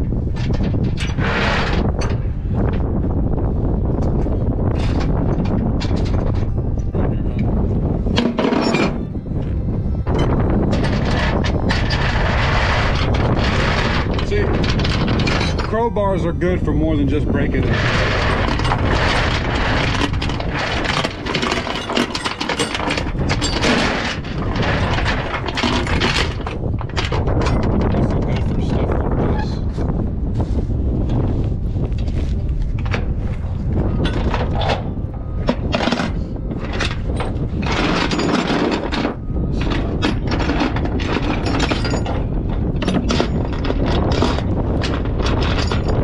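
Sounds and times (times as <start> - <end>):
steady low rumble: 0.0 - 46.0
chain clinking on metal deck: 10.1 - 15.9, 17.7 - 28.0, 34.0 - 46.0.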